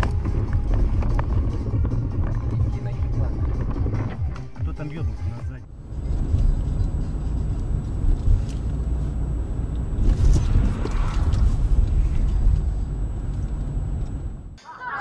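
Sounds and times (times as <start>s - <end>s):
car road and engine rumble: 0.0s - 14.6s.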